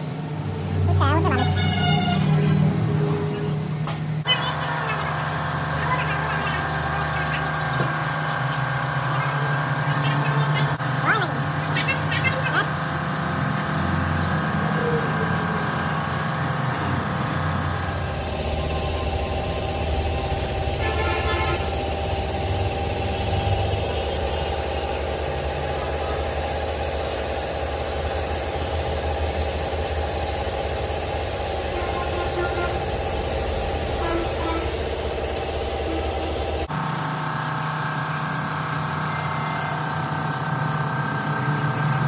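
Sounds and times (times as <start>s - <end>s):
air compressor running: 0.0s - 42.0s
spray gun hissing: 18.0s - 36.7s.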